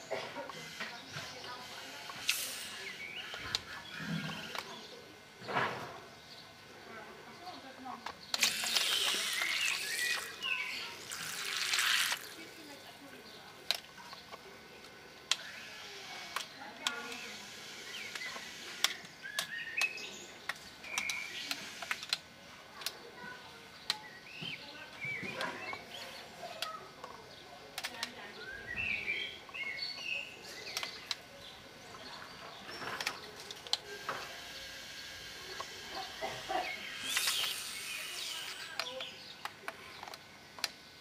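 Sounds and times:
faint voices: 0.0 - 41.0
small birds chirping: 0.0 - 41.0
sharp clicks: 8.0 - 10.5, 16.3 - 23.0, 26.6 - 28.2, 29.4 - 31.3, 36.9 - 40.8.

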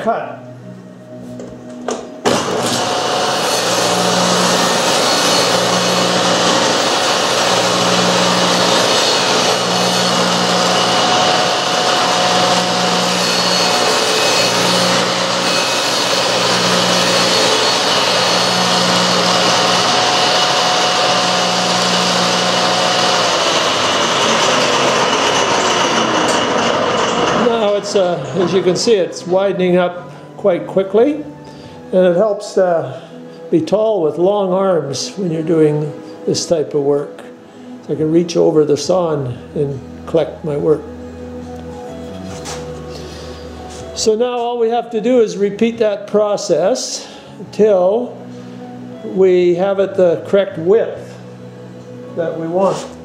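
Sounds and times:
table saw cutting wood: 1.9 - 30.1, 38.0 - 44.5, 47.0 - 53.0.

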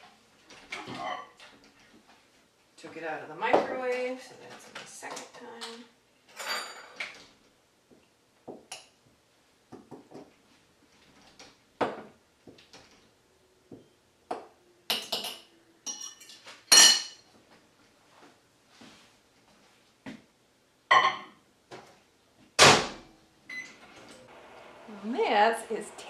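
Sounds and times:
dishes and utensils clinking: 6.3 - 7.2, 14.9 - 17.3.

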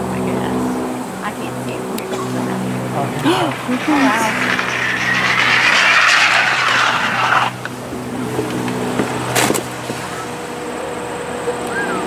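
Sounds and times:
skis hissing on snow track: 2.8 - 7.8.

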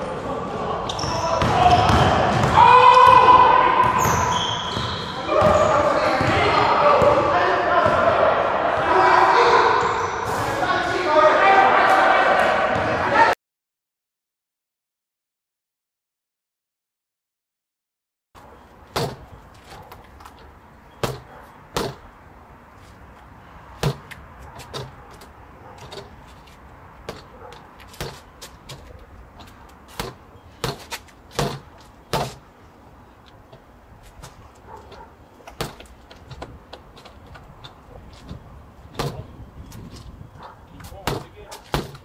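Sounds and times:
boxing gloves smacking punching bag: 18.9 - 19.3, 21.0 - 22.1, 23.8 - 25.2, 27.1 - 28.9, 29.9 - 32.4, 35.5 - 35.9, 38.9 - 39.2, 41.0 - 42.0.

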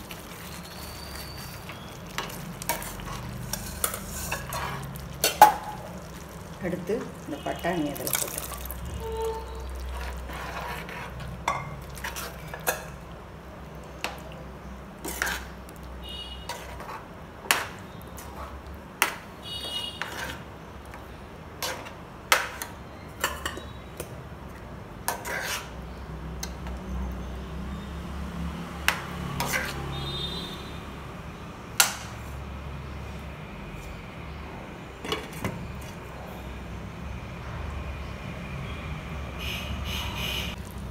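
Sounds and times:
spoon stirring thick food: 0.0 - 9.0, 9.6 - 13.0, 15.0 - 25.8.

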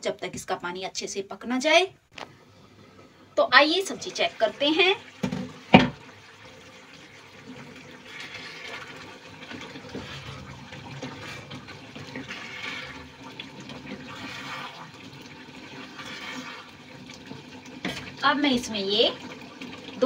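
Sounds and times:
curry sloshing in a pan: 3.9 - 20.0
spatula stirring: 7.5 - 15.0, 15.7 - 16.8.

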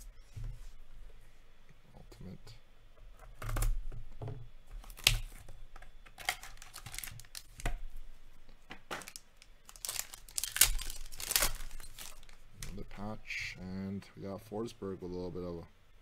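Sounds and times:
card pack wrapper tearing: 4.8 - 5.4, 6.2 - 7.6, 8.9 - 12.8.

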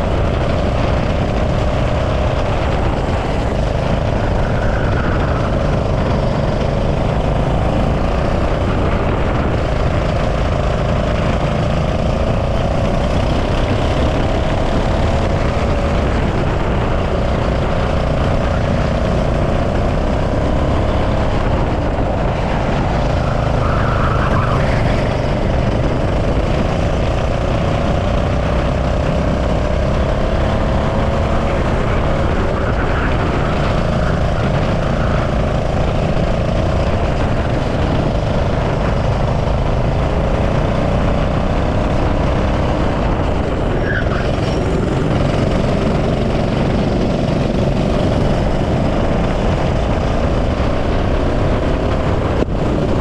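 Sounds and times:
kart engine running hard: 0.0 - 53.0
wind rumble on microphone: 0.0 - 53.0.

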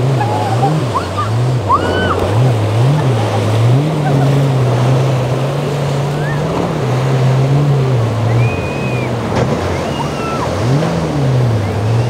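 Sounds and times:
boat engines running hard: 0.0 - 12.0
waves breaking: 0.0 - 12.0.

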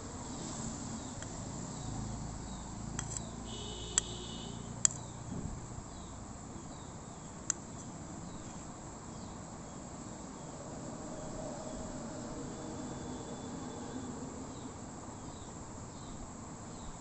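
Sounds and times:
background hiss: 0.0 - 17.0
sharp clicks: 3.0 - 4.2, 4.8 - 5.1.

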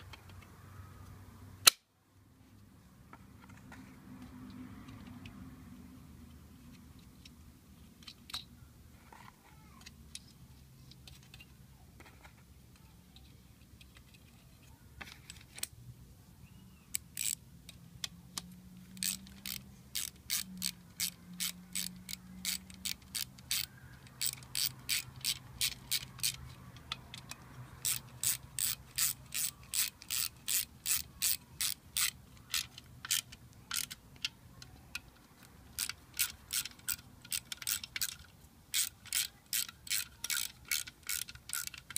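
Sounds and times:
ratchet wrench clicking: 16.9 - 34.3, 34.9 - 41.9.

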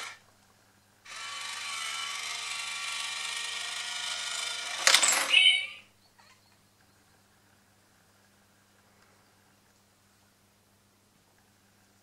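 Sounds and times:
small motor whirring: 1.1 - 4.9
toy cat meow: 5.2 - 6.4.

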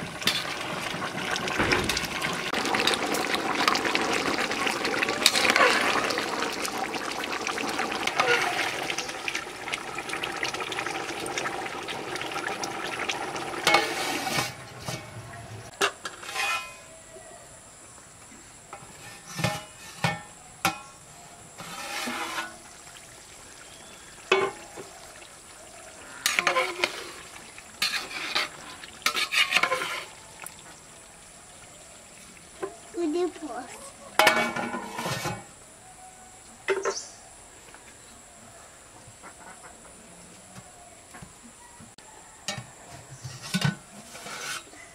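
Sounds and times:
spatula scraping metal pot: 8.0 - 8.8, 13.6 - 15.2, 16.0 - 16.9, 21.6 - 22.6, 26.2 - 30.2, 34.2 - 35.5, 43.1 - 44.9.

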